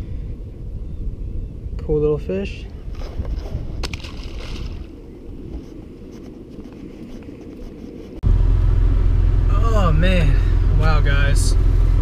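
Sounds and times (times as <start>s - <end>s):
water and rustling: 2.4s - 8.2s
car driving rumble: 8.2s - 12.0s.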